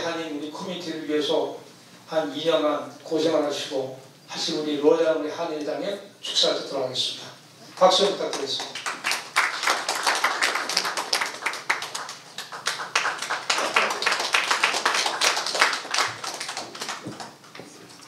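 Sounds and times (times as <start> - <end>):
audience clapping: 8.2 - 17.8.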